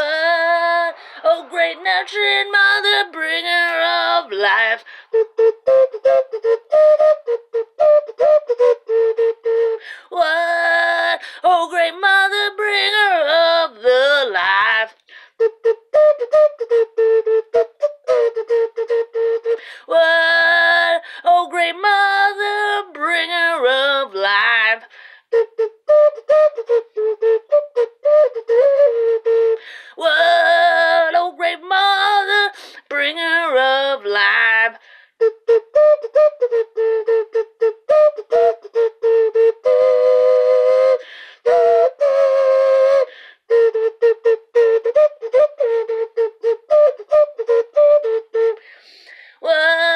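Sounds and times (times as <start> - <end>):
whistle notes: 0.0 - 4.0, 35.6 - 48.8.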